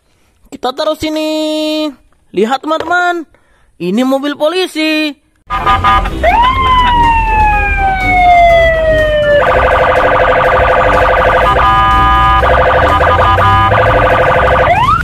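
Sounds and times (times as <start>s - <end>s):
police siren wailing and warbling: 5.5s - 15.0s.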